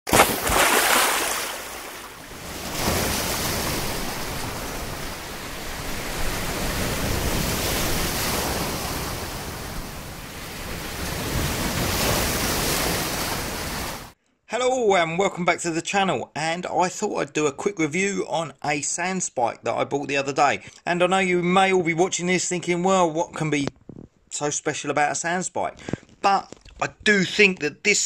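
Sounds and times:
sea waves breaking: 0:00.1 - 0:14.2.

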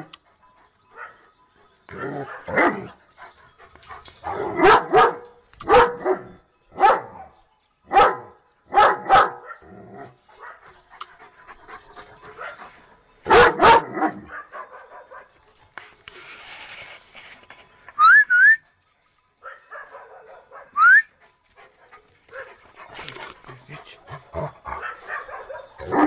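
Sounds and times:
dog barking: 0:02.0 - 0:02.9, 0:04.3 - 0:07.2, 0:07.9 - 0:09.7, 0:13.3 - 0:15.3, 0:19.4 - 0:21.0, 0:22.3 - 0:22.6, 0:24.2 - 0:26.0.

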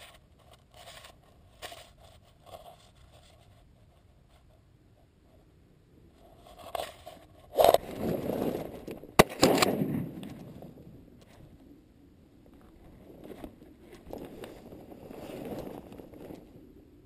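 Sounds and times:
shotgun shot: 0:09.2 - 0:10.6.

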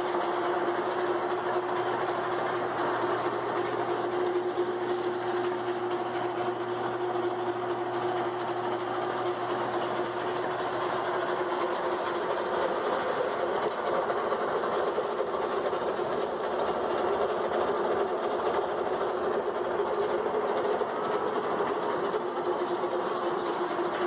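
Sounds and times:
milling machine droning: 0:00.0 - 0:24.0.

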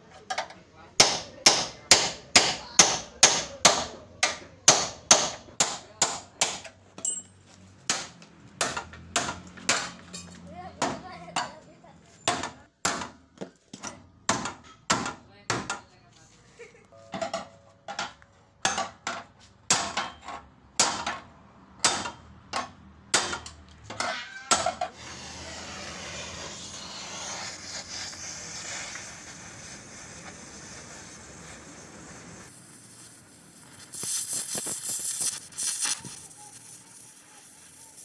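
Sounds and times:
hammer on metal: 0:01.0 - 0:07.2, 0:17.2 - 0:23.6
arc welder hissing and crackling: 0:24.9 - 0:38.0.

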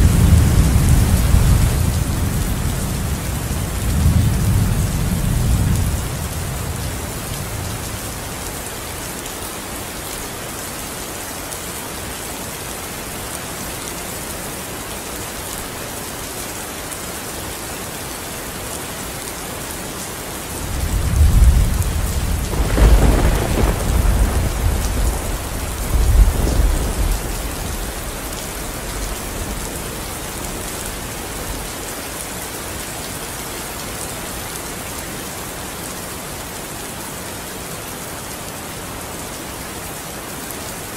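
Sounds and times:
thunder rumbling and cracking: 0:00.0 - 0:08.2, 0:20.6 - 0:31.0
steady rain: 0:00.0 - 0:40.9.

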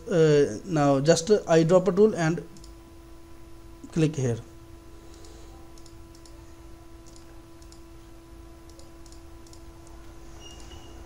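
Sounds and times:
faint steady hum: 0:00.0 - 0:11.0
computer mouse buttons clicking: 0:05.1 - 0:06.4, 0:07.0 - 0:07.8, 0:08.6 - 0:10.8.

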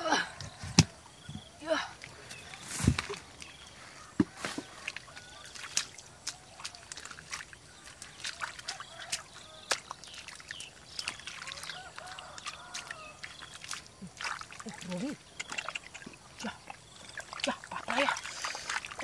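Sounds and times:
hands squelching through wet mud: 0:00.1 - 0:19.0
wet slaps and small splashes: 0:02.0 - 0:03.6, 0:04.2 - 0:19.0.

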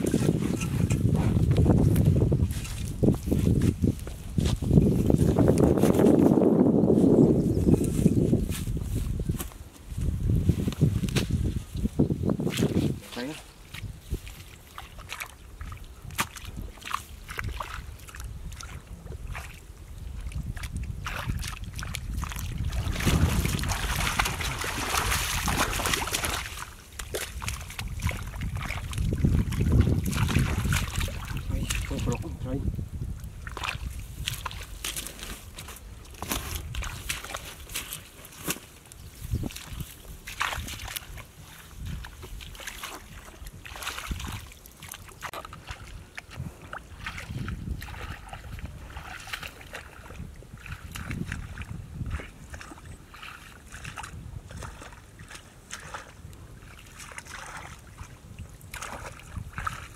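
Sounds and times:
muddy water splashing: 0:00.0 - 0:59.9
wind rumble on microphone: 0:00.0 - 0:59.9.

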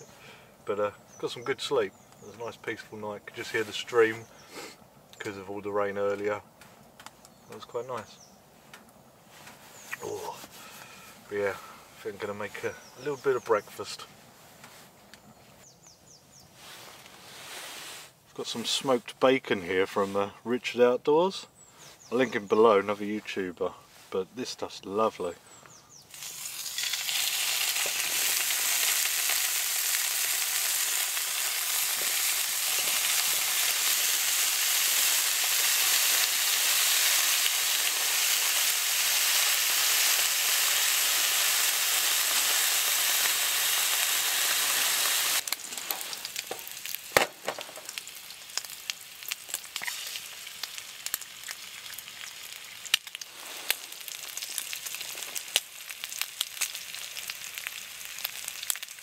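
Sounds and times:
pops and crackles: 0:26.1 - 0:40.4, 0:45.4 - 0:59.0
bacon sizzling in frying pan: 0:26.1 - 0:59.0.

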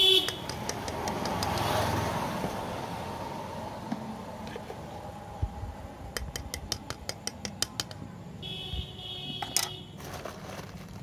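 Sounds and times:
utensil tapping metal bowl: 0:00.3 - 0:01.6, 0:06.1 - 0:08.0.

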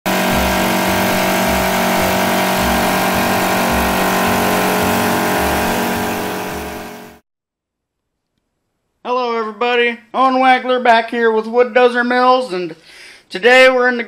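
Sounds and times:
wood-turning machine drone: 0:00.0 - 0:07.2.

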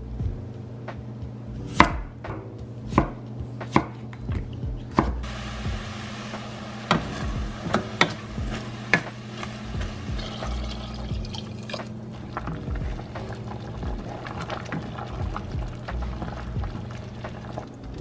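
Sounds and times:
water poured into a pot: 0:06.3 - 0:17.8.

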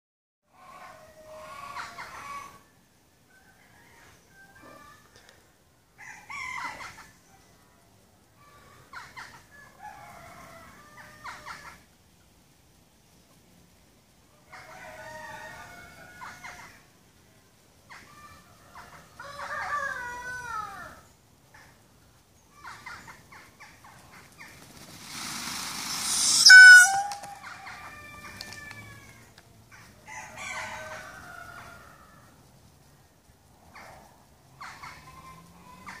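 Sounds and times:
harsh hissing rush: 0:24.9 - 0:27.1
peafowl honking calls: 0:25.0 - 0:28.3
rattling honk: 0:26.1 - 0:27.2.

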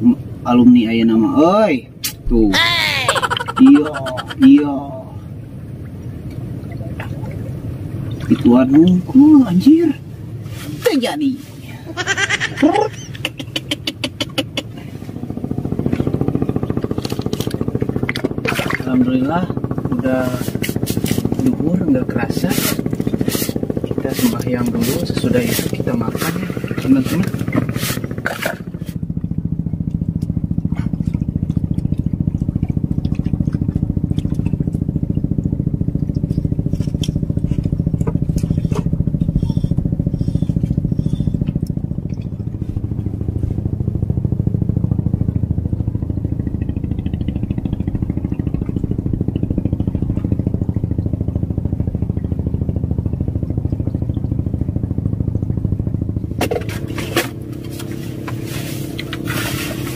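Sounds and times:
small engine running: 0:02.2 - 0:05.4, 0:07.4 - 0:59.9.

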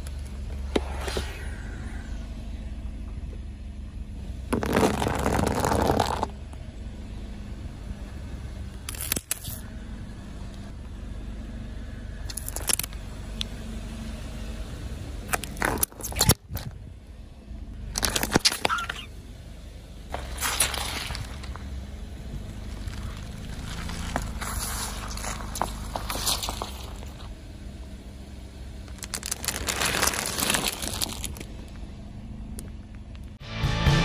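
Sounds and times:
car engine running: 0:00.0 - 0:34.0
tyre crushing plastic objects: 0:04.5 - 0:06.3, 0:17.9 - 0:19.0, 0:28.9 - 0:31.5.

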